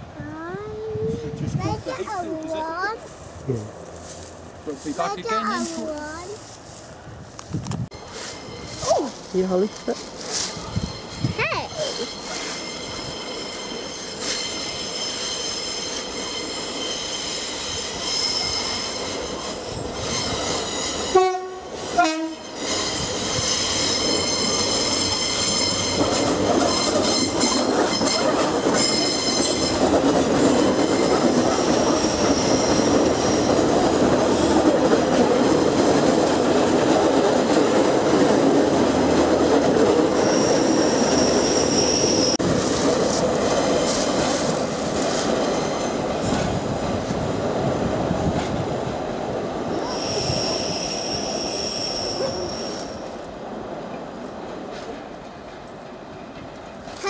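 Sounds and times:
railcar diesel engines: 0.0 - 57.0
train wheels on rails: 0.0 - 57.0
train two-tone horn: 21.1 - 23.0.

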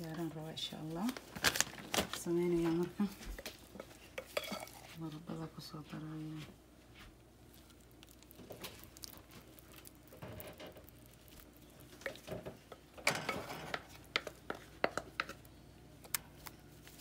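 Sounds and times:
spoon squelching and scraping food: 3.1 - 5.3, 6.4 - 17.0.

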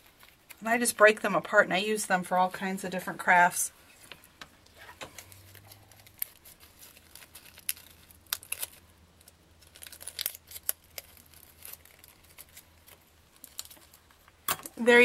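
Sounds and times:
rustling and crinkling leaves: 4.0 - 14.4.

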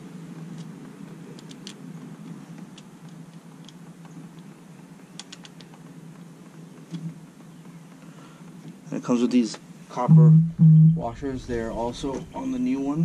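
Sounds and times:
small metal clicks: 5.2 - 5.8
steady low hum: 9.8 - 13.0.

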